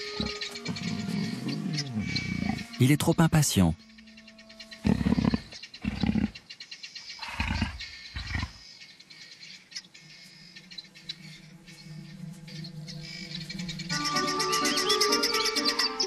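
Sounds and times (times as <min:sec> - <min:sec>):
leopard growling: 0:00.0 - 0:02.8, 0:04.7 - 0:06.4, 0:07.2 - 0:08.6.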